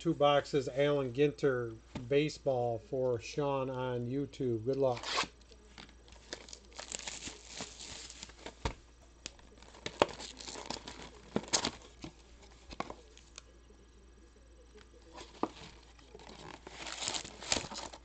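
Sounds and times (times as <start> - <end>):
plastic wrapping crinkling: 5.0 - 13.4, 15.1 - 18.0.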